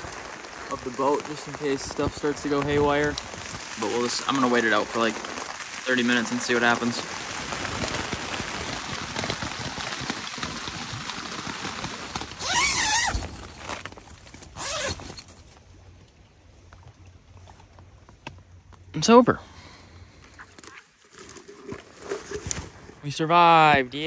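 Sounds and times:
rain drumming on tent: 0:00.0 - 0:15.3.

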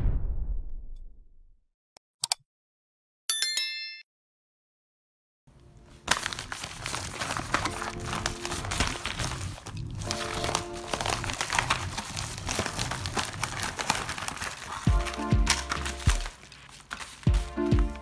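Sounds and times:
padded envelope crinkling: 0:05.8 - 0:18.0
background music with steady beat: 0:14.9 - 0:16.3, 0:17.3 - 0:18.0.

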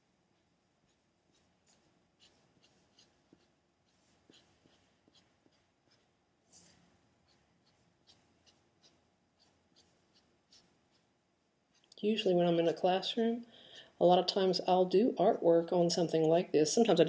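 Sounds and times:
drawing tool strokes on paper: 0:00.0 - 0:12.8.

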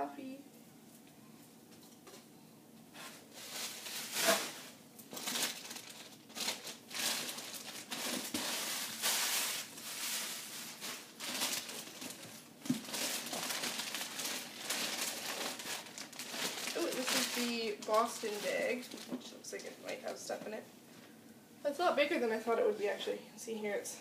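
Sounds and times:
plastic wrapping crinkling: 0:03.0 - 0:20.4.

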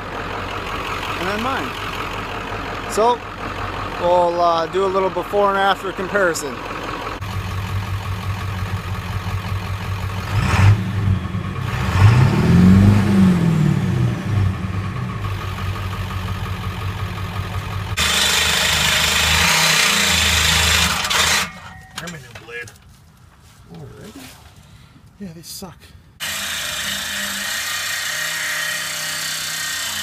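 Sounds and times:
diesel engine revving and idling: 0:00.0 - 0:21.5.

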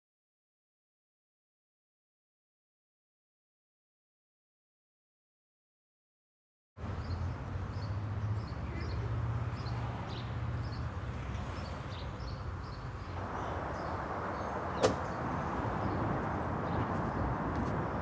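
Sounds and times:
birds chirping: 0:06.8 - 0:18.0
car door latch click: 0:14.8 - 0:15.1.

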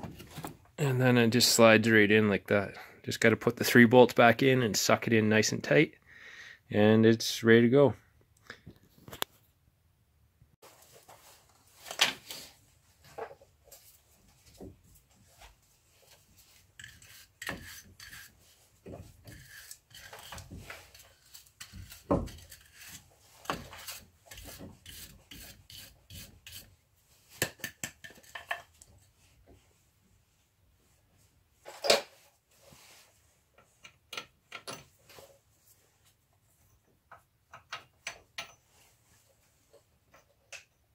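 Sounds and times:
scraping and rubbing metal: 0:15.2 - 0:26.8.

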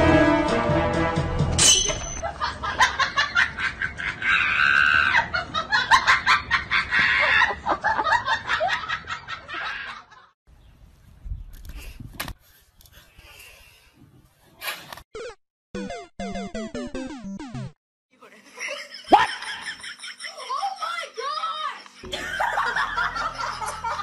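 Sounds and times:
people laughing hard: 0:02.2 - 0:10.4, 0:18.3 - 0:24.0.

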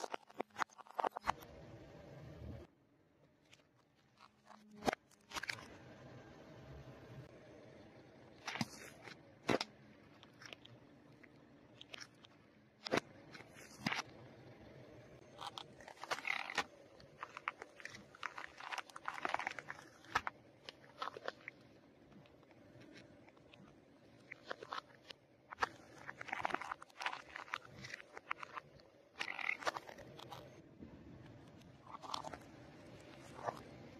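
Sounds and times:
crunching bursts: 0:15.2 - 0:30.6
sharp cracks and pops: 0:15.3 - 0:30.6.

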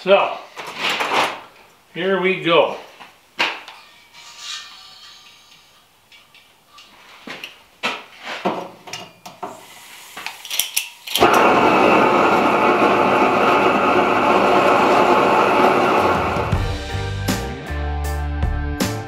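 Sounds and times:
torch flame roaring: 0:11.2 - 0:16.6.

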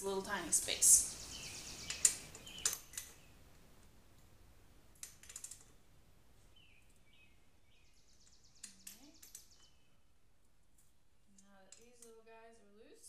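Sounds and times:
socket ratchet clicking: 0:05.0 - 0:05.7.

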